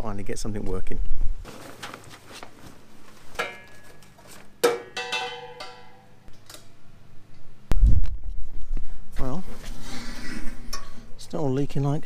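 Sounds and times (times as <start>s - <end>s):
metallic clanks: 3.3s - 6.8s.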